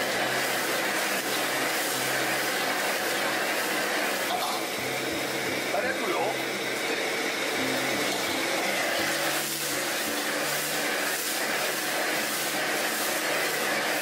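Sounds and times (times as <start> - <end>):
burner rushing hiss: 0.0 - 14.0
food sizzling in a wok: 0.0 - 14.0.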